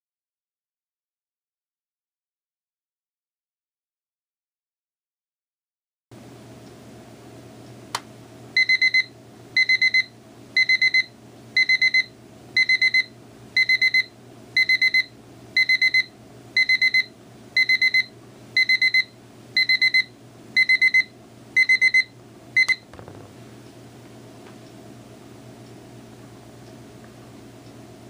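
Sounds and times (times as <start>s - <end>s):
alarm clock beeping: 8.6s - 22.8s.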